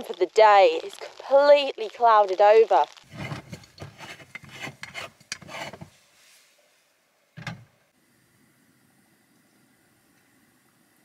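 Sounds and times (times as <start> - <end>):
metal threads grating: 3.1 - 5.9.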